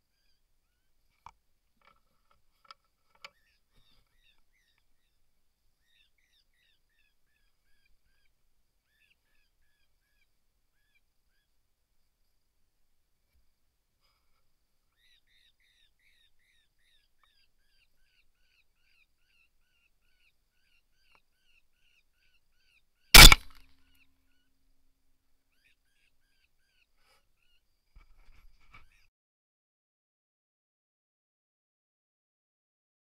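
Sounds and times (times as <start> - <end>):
rifle shot: 23.2 - 23.6.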